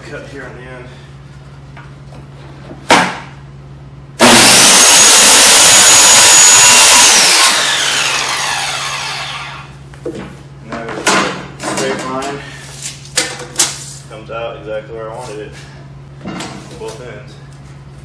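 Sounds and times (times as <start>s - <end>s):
circular saw cutting plywood: 4.2s - 9.7s.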